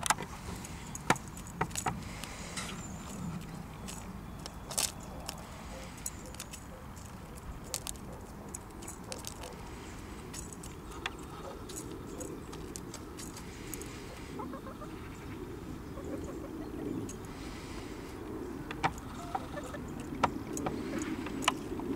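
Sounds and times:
beaks clicking on grain and tub: 0.0 - 14.0.

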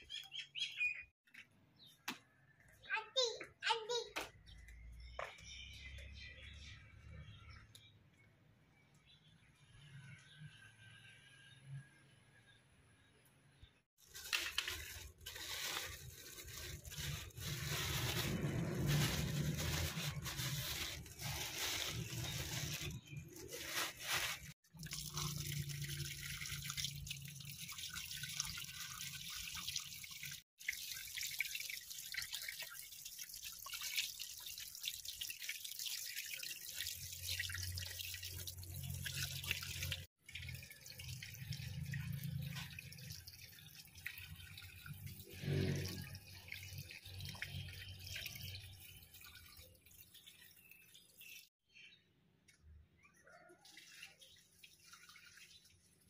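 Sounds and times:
tap water running and dripping: 14.0 - 23.4, 24.7 - 51.5, 53.6 - 56.0.

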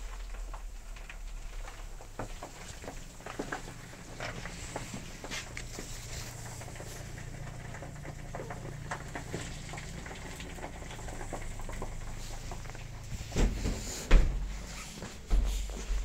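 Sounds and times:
gas burner running: 0.0 - 16.0
hot wax crackling: 0.0 - 16.0
dull bumps: 2.0 - 16.0.

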